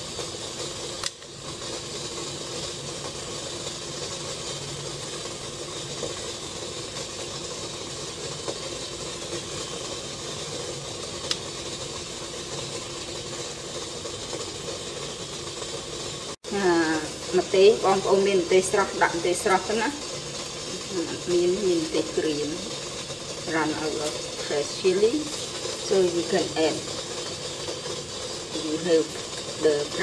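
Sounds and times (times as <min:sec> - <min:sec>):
steam hissing from boiling pot: 0:00.0 - 0:30.0.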